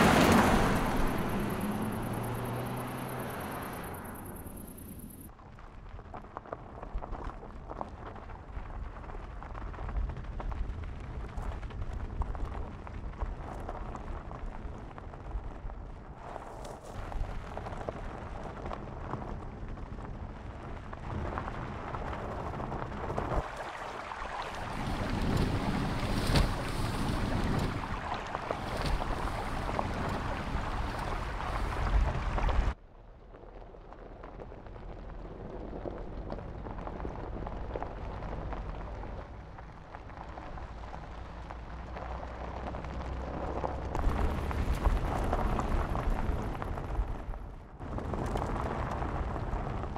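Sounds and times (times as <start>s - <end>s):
low engine hum: 0.0s - 5.3s, 17.4s - 49.9s
low steady rumble: 0.0s - 49.9s
stones crunching under tyres: 33.3s - 49.9s.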